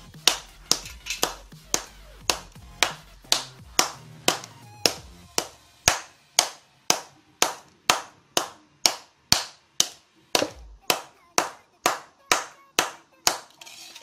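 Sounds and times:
clap beat of backing music: 0.0s - 9.6s.

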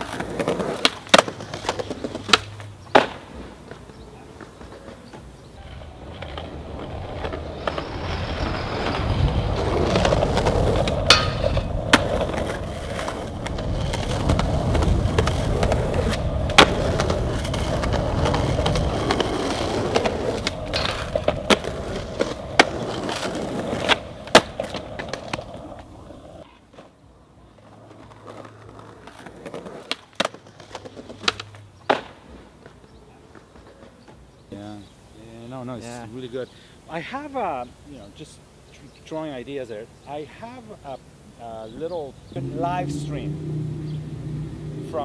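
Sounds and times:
skateboard clacks: 0.0s - 34.2s
skateboard wheels rolling on asphalt: 0.0s - 45.0s.

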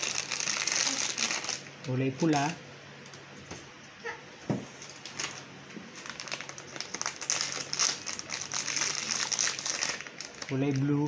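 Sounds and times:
plastic packaging crinkling: 0.0s - 2.6s, 4.8s - 11.0s.

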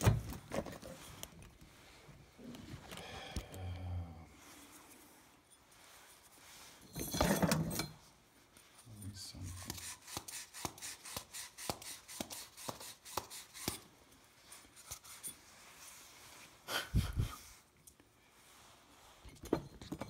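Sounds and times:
rustling scrape: 4.4s - 9.9s, 14.1s - 16.6s, 18.2s - 19.8s.

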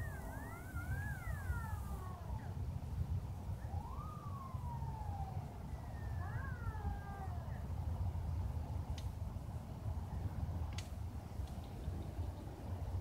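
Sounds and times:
emergency sirens wailing: 0.0s - 7.8s.

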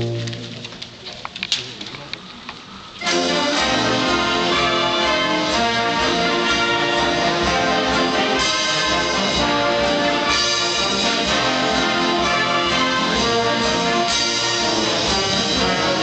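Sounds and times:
brass ensemble playing chords: 0.0s - 0.7s, 3.0s - 16.0s.

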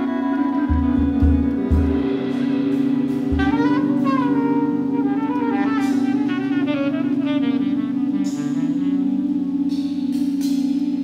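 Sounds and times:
cymbal wash: 0.0s - 11.0s
low drone: 0.0s - 11.0s
saxophone melody: 0.0s - 11.0s
low drum hit: 0.7s - 7.6s.

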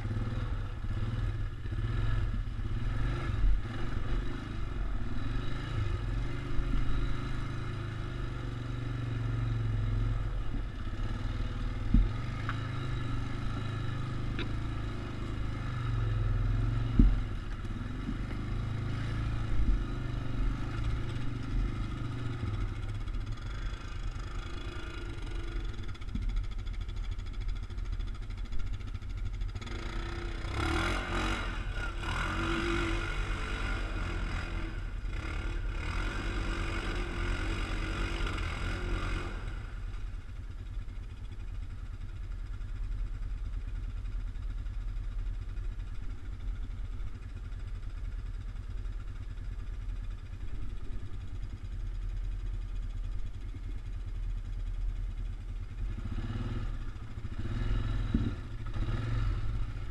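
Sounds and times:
engine revving: 0.0s - 25.7s, 29.6s - 39.8s, 55.8s - 59.9s
engine idling: 0.0s - 35.9s, 39.5s - 59.9s.

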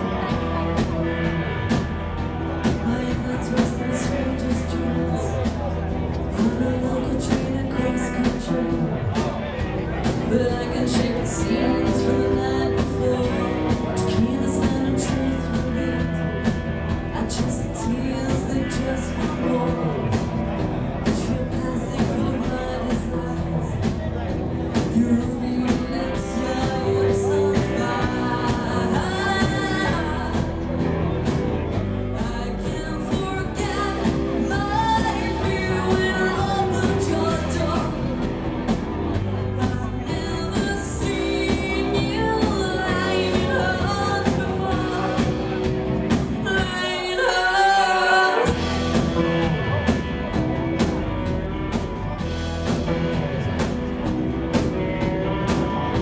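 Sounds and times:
woman singing lead vocal: 0.0s - 31.2s, 32.0s - 49.8s
live rock band playing: 0.0s - 56.0s.

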